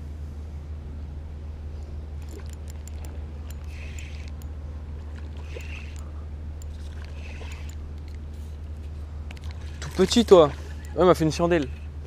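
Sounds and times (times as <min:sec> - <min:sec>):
steady low hum: 0:00.0 - 0:12.0
fishing reel clicking and whirring: 0:02.2 - 0:08.2, 0:09.3 - 0:11.7.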